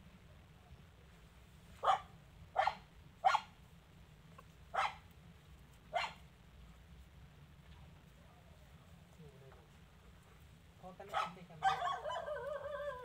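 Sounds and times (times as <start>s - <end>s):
dog barking: 1.8s - 3.5s, 4.7s - 5.0s, 5.9s - 6.2s, 11.1s - 13.0s.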